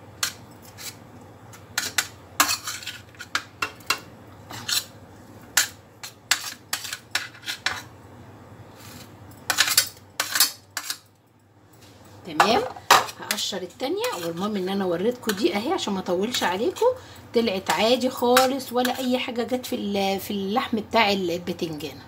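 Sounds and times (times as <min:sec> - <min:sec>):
metal spoon scraping metal tray: 0:00.2 - 0:01.0, 0:01.8 - 0:04.9, 0:05.6 - 0:07.9, 0:08.8 - 0:11.1, 0:12.4 - 0:14.6, 0:17.6 - 0:19.3.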